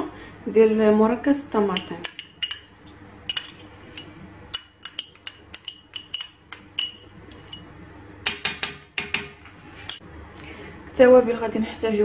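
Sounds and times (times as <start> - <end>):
metal fork clinking on glass bowl: 1.8 - 2.7, 3.3 - 7.7.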